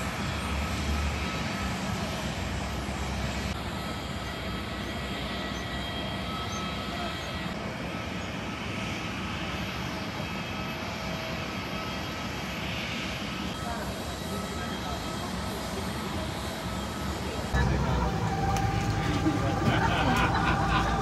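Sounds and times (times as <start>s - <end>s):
jet engine and airflow noise: 0.0s - 21.0s
faint whining tones: 14.2s - 21.0s.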